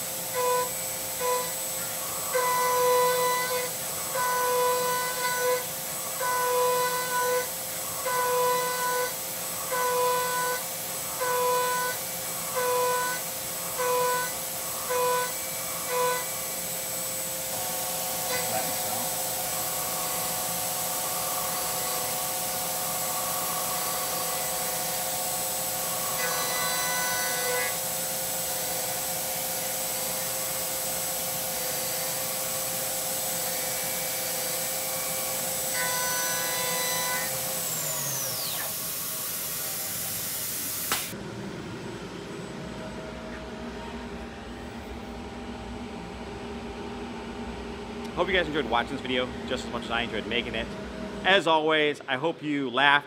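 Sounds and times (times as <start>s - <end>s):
spindle whine: 0.0s - 16.4s, 17.4s - 27.8s, 34.6s - 46.0s
mill cutting tone: 0.0s - 45.3s.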